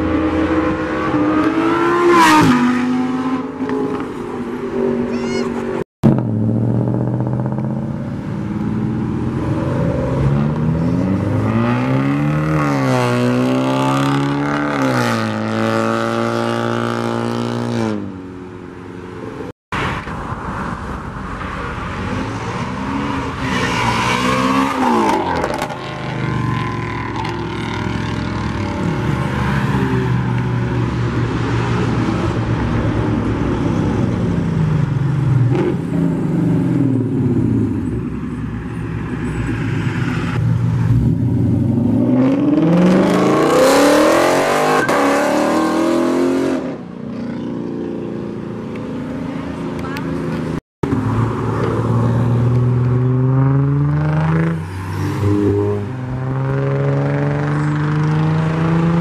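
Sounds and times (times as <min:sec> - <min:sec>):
car engines accelerating hard: 0:20.7 - 0:59.0.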